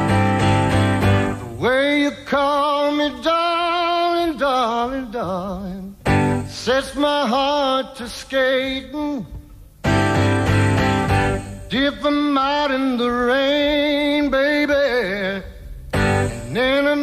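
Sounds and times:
acoustic guitar: 0.0s - 17.0s.

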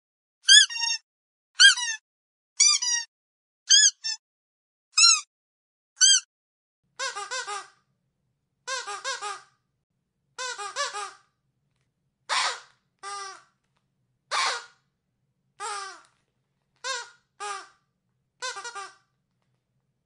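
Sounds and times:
squeaky dog toy squeaking: 0.4s - 1.0s, 1.6s - 2.0s, 2.6s - 3.1s, 3.7s - 4.2s, 5.0s - 5.3s, 6.0s - 6.3s, 7.0s - 7.8s, 8.7s - 9.5s, 10.4s - 11.3s, 12.3s - 13.5s, 14.3s - 14.8s, 15.6s - 16.1s, 16.8s - 17.8s, 18.4s - 19.0s.

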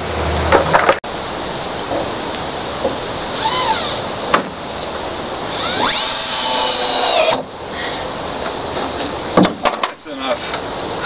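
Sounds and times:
cordless drill motor whine: 3.4s - 4.1s, 5.5s - 7.4s
sharp knocks: 9.4s - 10.0s.

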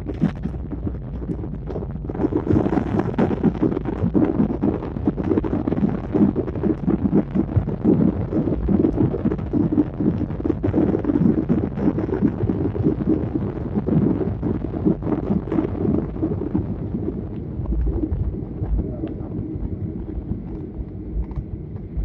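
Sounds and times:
airliner engines and wheels rumbling: 16.1s - 22.0s.

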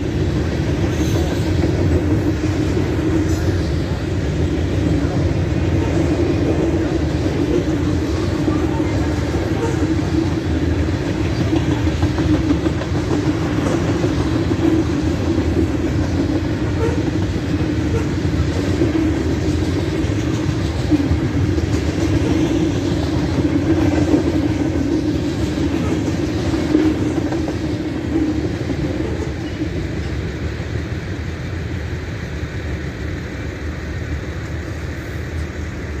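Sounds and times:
freight train rumbling on rails: 0.0s - 36.0s.

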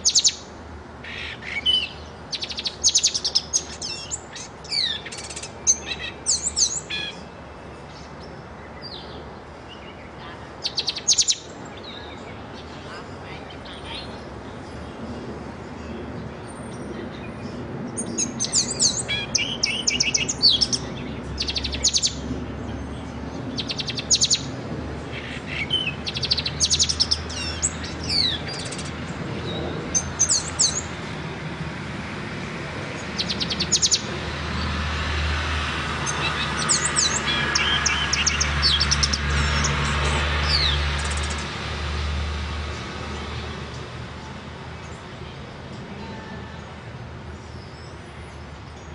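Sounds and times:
songbird trilling and chirping: 0.0s - 0.4s, 1.0s - 14.3s, 17.1s - 24.5s, 25.1s - 31.0s, 33.2s - 34.1s, 36.0s - 41.4s.

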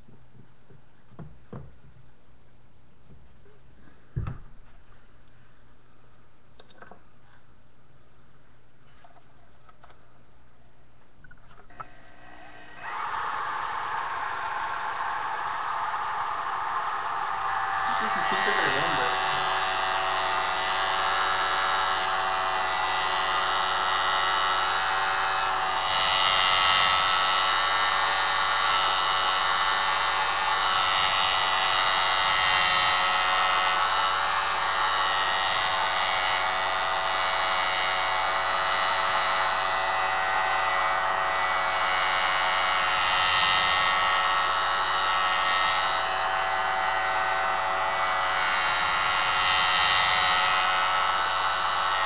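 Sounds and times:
electric motor running: 11.8s - 52.0s
tool grinding hiss: 11.8s - 52.0s.

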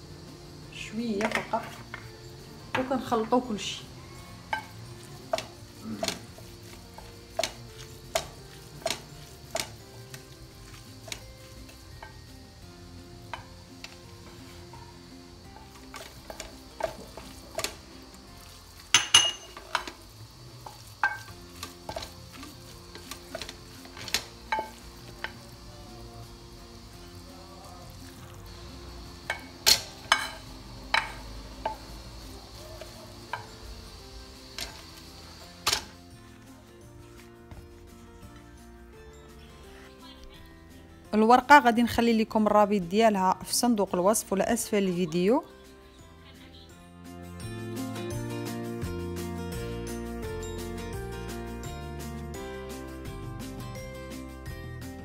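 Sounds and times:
spoon stirring moist filling: 3.9s - 33.7s
spoon knocking against glass: 19.0s - 19.8s.

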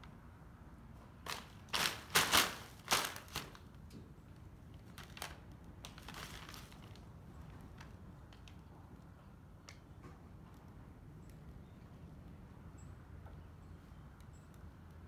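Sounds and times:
plastic bag crinkling: 1.2s - 3.7s, 4.8s - 7.1s.

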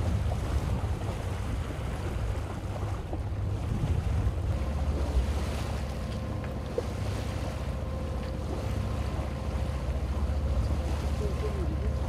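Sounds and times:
wind buffeting microphone: 0.0s - 7.5s
boat engine rumbling: 0.0s - 12.0s.

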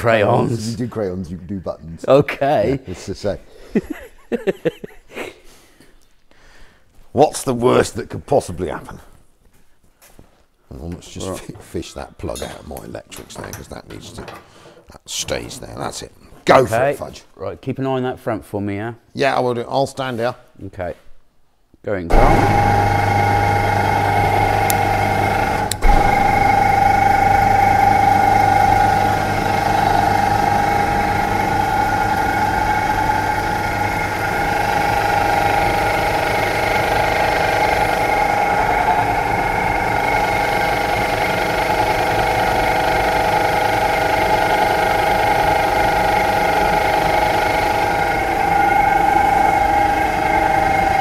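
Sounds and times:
vehicle lift whining: 22.1s - 51.0s.

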